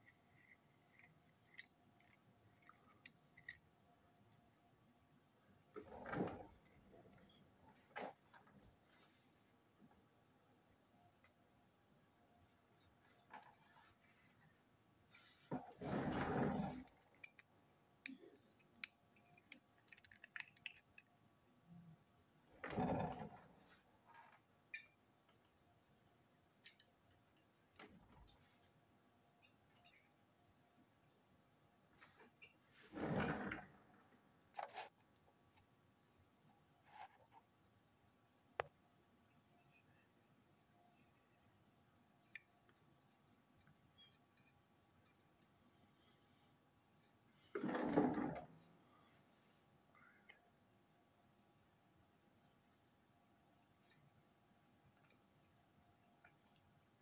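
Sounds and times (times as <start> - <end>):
clicks of small parts handled: 16.9 - 21.1.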